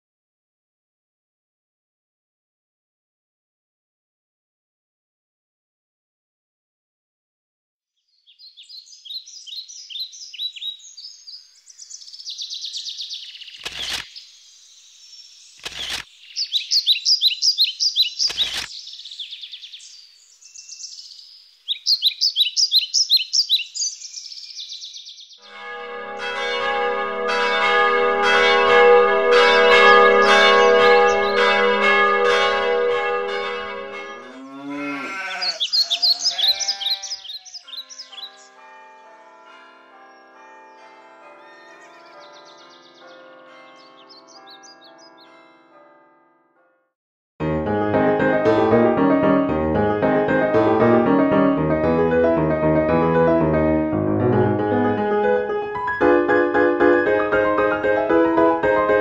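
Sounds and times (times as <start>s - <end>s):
birds chirping and trilling: 8.0s - 45.7s
sharp clicks: 13.6s - 14.1s, 15.6s - 16.1s, 18.2s - 18.8s
church bells ringing: 25.4s - 34.9s, 37.8s - 46.2s
cow mooing: 30.6s - 37.6s.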